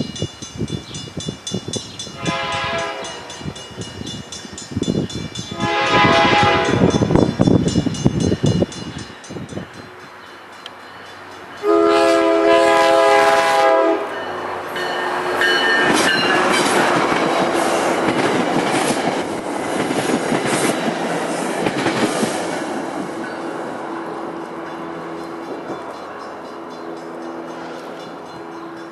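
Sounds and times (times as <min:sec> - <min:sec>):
train air horn blast: 0:02.2 - 0:03.4, 0:05.5 - 0:07.0, 0:11.6 - 0:14.2
train wheels clattering over rail joints: 0:15.3 - 0:23.5.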